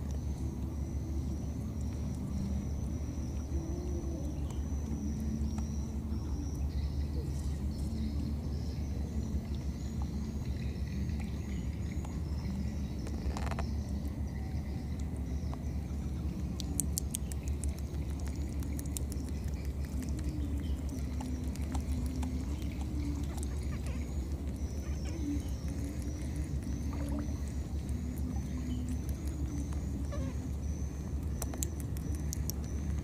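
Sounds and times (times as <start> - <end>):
steady low rumble: 0.0 - 33.0
faint high chirps: 17.4 - 33.0.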